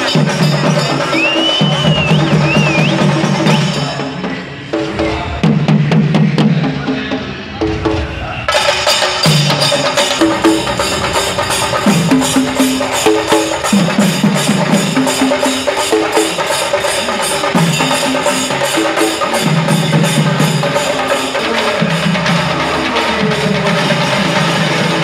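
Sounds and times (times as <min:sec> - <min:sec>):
barrel drums beaten with sticks: 0:07.6 - 0:25.0.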